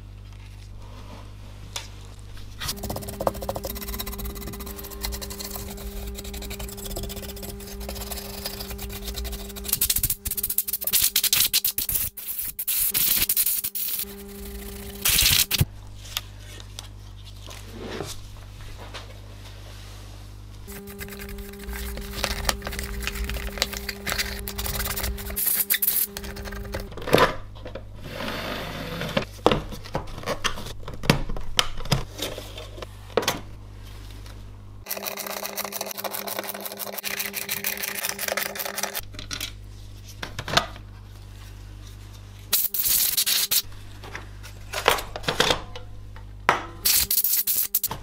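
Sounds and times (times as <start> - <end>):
brush sweeping metal casing: 20.7 - 26.1.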